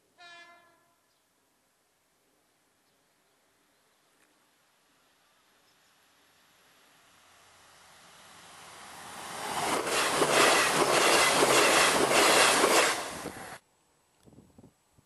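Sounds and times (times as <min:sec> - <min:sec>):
train passing: 0:04.6 - 0:13.6
wheels rattling on rails: 0:08.6 - 0:13.5.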